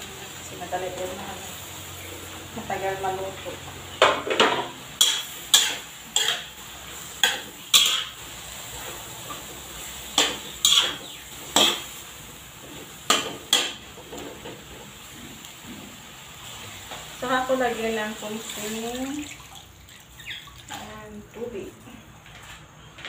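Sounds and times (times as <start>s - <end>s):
low sizzle: 0.0s - 22.3s
metal spatula scraping a wok: 5.0s - 12.0s.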